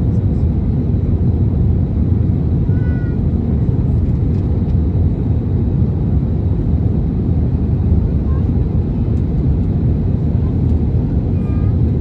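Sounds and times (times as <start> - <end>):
airplane cabin rumble: 0.0 - 12.0.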